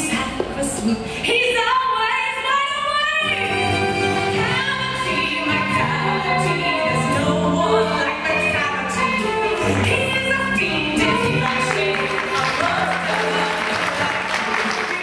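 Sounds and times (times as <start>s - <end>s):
person singing: 3.2s - 15.0s.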